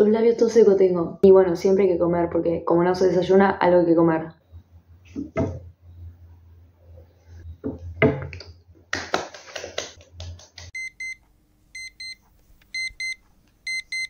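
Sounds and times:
alarm clock double beeps: 10.8s - 11.2s, 11.8s - 12.2s, 12.8s - 14.0s.

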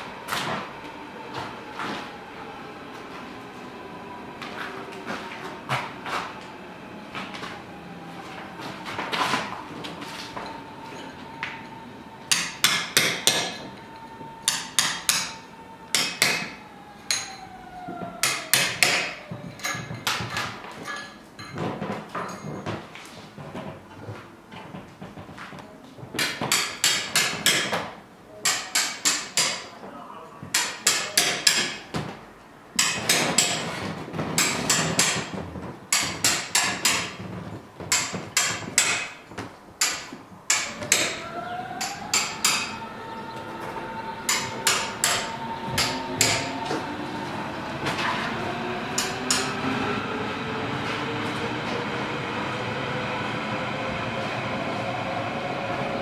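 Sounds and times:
electric train motor whine: 0.0s - 18.2s, 41.2s - 56.0s
train rolling noise: 0.0s - 29.6s, 30.5s - 56.0s
hand tool striking stone: 12.3s - 13.6s, 14.5s - 15.4s, 26.2s - 27.8s, 28.4s - 29.6s, 30.5s - 31.8s, 32.8s - 33.7s, 34.4s - 35.3s, 35.9s - 37.2s, 37.9s - 39.2s, 41.8s - 42.7s, 44.3s - 46.5s.

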